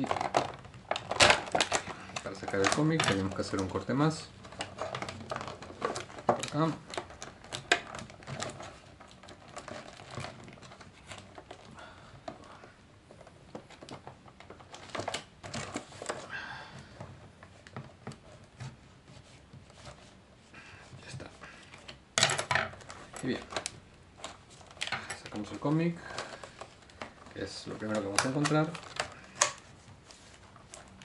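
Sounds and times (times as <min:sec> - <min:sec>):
stiff plastic crinkling: 0:00.0 - 0:31.0.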